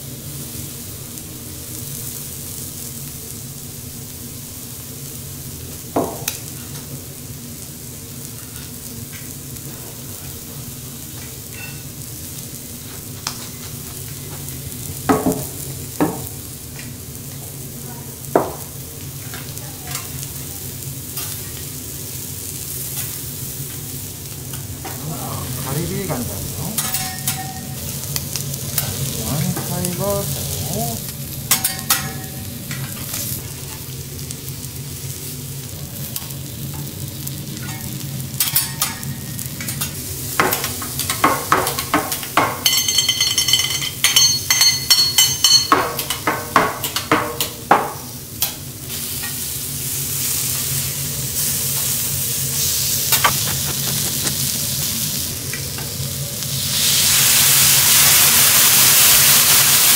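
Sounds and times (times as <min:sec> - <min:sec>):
seafood sizzling on griddle: 0:00.0 - 0:59.9
spatulas scraping griddle: 0:50.4 - 0:55.6.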